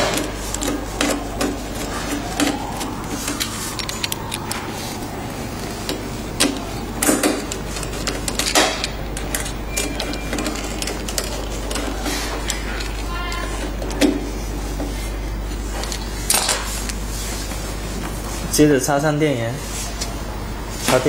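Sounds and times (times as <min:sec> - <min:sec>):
low hum: 0:00.0 - 0:16.3.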